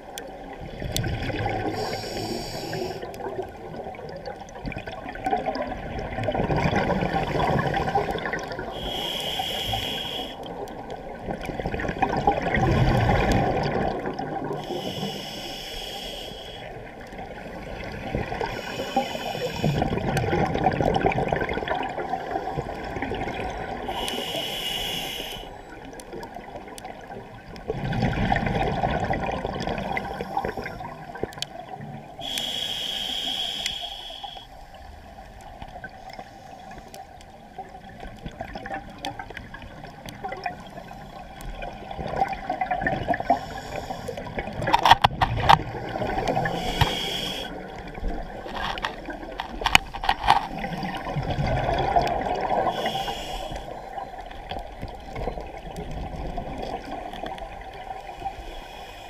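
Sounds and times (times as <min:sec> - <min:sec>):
exhaled bubbles rushing: 0:00.6 - 0:01.9, 0:03.1 - 0:08.7, 0:11.1 - 0:14.6, 0:19.6 - 0:23.8, 0:26.8 - 0:31.8, 0:44.3 - 0:46.6, 0:47.6 - 0:52.8
regulator inhale hiss: 0:01.6 - 0:03.2, 0:08.6 - 0:10.6, 0:14.6 - 0:16.9, 0:18.4 - 0:20.0, 0:23.8 - 0:25.6, 0:30.0 - 0:30.9, 0:32.2 - 0:34.8, 0:36.1 - 0:37.1, 0:43.1 - 0:44.4, 0:45.9 - 0:47.8, 0:52.6 - 0:53.9, 0:58.0 - 0:59.0.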